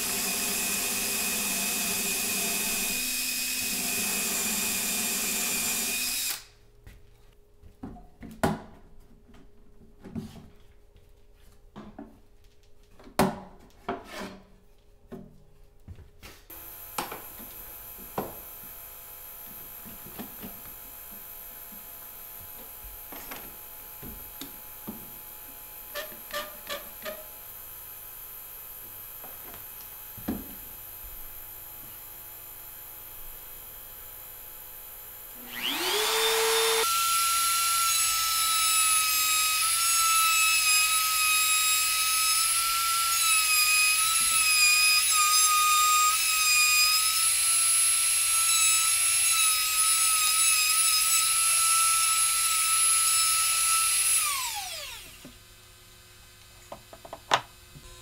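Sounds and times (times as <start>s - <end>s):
router high whine: 0.0s - 6.5s, 16.5s - 24.4s, 34.1s - 39.9s, 47.3s - 55.3s.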